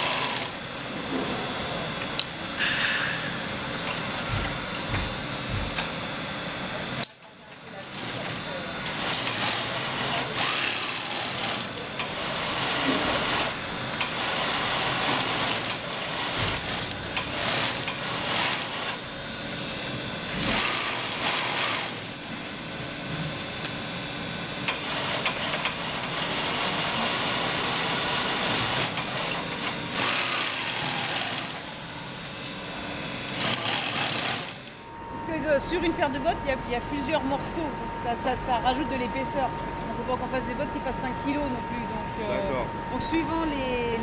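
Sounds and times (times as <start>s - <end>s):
sewing machine stitching: 0.0s - 0.6s, 7.9s - 19.0s, 20.4s - 22.2s, 28.6s - 31.7s, 33.3s - 34.8s.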